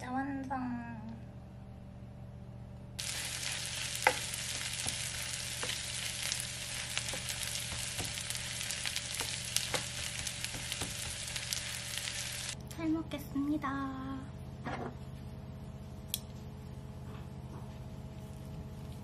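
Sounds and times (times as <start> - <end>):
cabbage sizzling in a frying pan: 3.0 - 12.6
wooden spatula knocking pan: 3.4 - 11.3.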